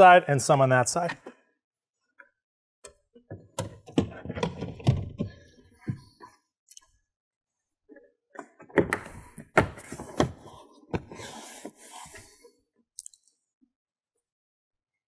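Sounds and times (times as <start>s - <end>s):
plastic rubbing and scraping: 3.6s - 6.3s, 8.4s - 12.4s.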